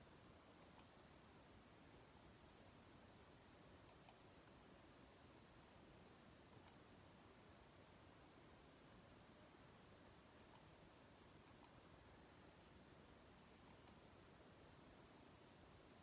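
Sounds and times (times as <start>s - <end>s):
soft clicks: 0.5s - 1.0s, 3.8s - 4.6s, 6.5s - 6.9s, 10.3s - 10.8s, 11.4s - 11.8s, 13.6s - 14.1s.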